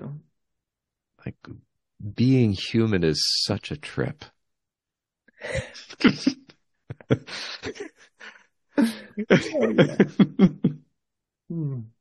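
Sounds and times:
people laughing: 0:05.4 - 0:10.8.

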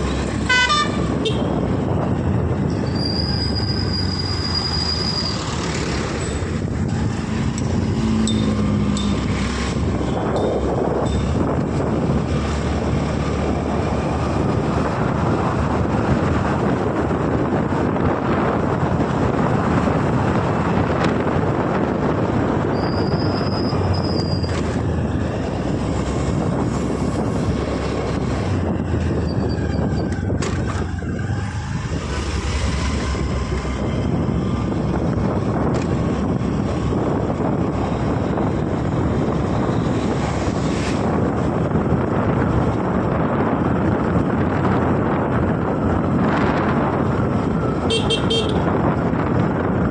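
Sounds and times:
wind rushing over microphone: 0:00.0 - 0:49.9.

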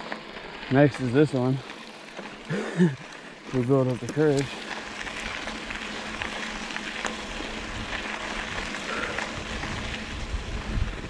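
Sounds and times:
bike clicks: 0:00.0 - 0:11.0
bike tyres on dirt: 0:00.0 - 0:11.0
wind on microphone: 0:09.3 - 0:11.0.

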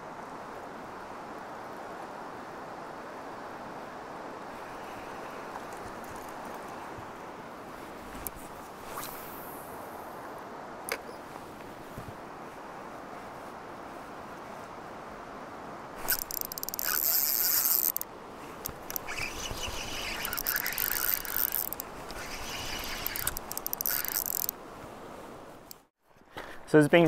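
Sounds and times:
river rushing: 0:00.0 - 0:25.9
fishing reel drag buzzing: 0:16.0 - 0:24.6.

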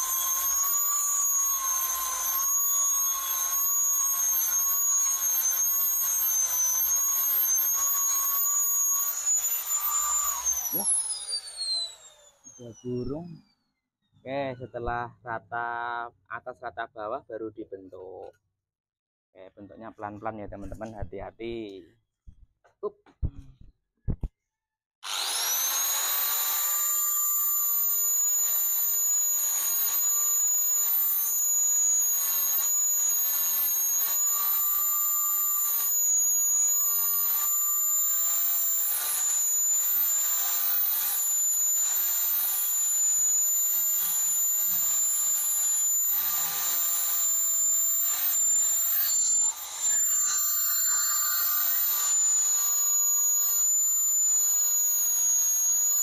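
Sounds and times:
angle grinder whining: 0:00.0 - 0:13.6, 0:25.0 - 0:56.0.

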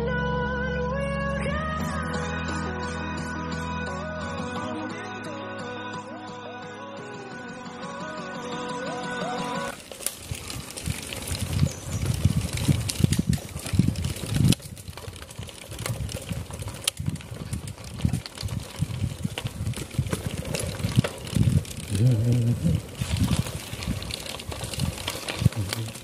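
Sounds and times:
bicycle clicks and knocks: 0:09.7 - 0:26.0
wind buffeting microphone: 0:10.0 - 0:26.0.

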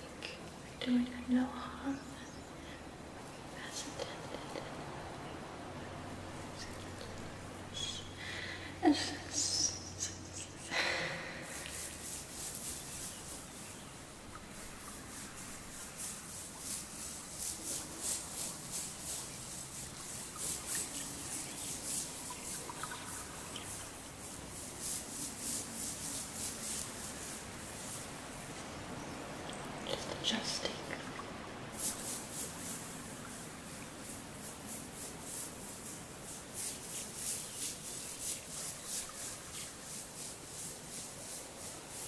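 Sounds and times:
bag of crystals rattling: 0:11.2 - 0:28.3, 0:31.8 - 0:42.0.

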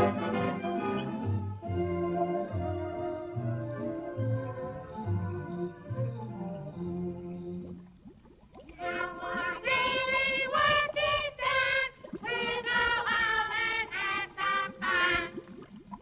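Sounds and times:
voices singing held notes: 0:08.8 - 0:15.4.

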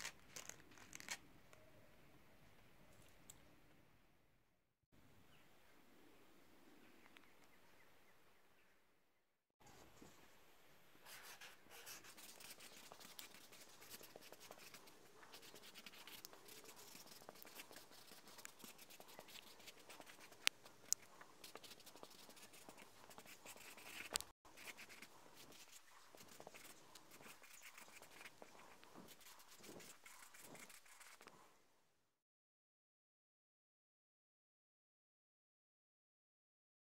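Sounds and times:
marker scratching on paper: 0:11.0 - 0:31.4.

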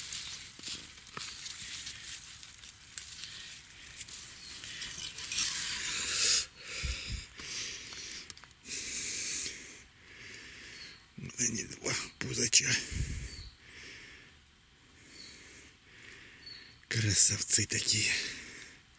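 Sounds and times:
dry grass rustling and crackling: 0:00.0 - 0:08.6
undergrowth brushing: 0:00.0 - 0:08.6.

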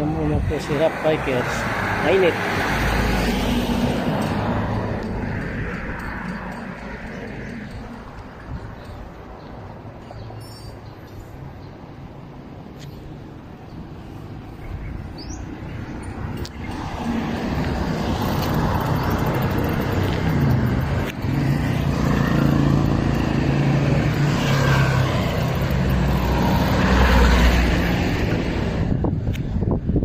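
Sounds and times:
road noise: 0:00.0 - 0:30.0
vehicle engine humming: 0:11.3 - 0:30.0.

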